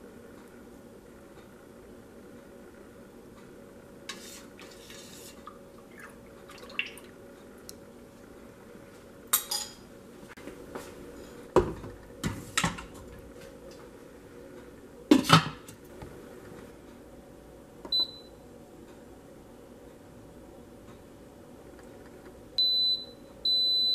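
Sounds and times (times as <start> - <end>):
short high appliance beep: 17.9 - 18.4, 22.6 - 23.9.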